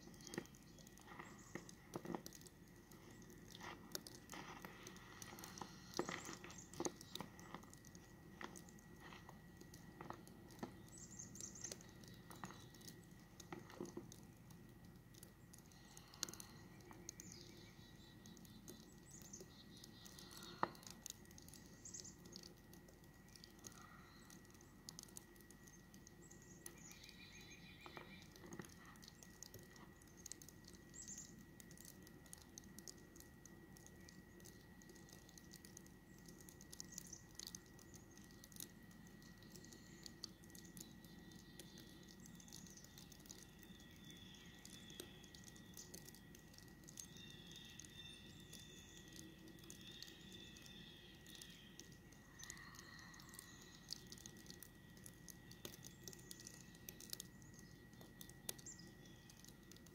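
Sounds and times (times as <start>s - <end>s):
faint steady high whine: 0.0s - 59.9s
faint ticks and patter: 0.0s - 59.9s
faint high chirps: 15.2s - 59.9s.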